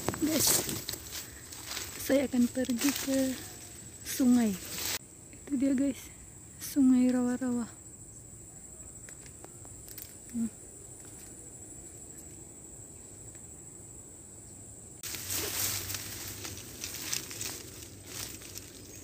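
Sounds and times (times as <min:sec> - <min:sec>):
insects droning: 0:00.0 - 0:19.0
loud rustling: 0:15.0 - 0:19.0.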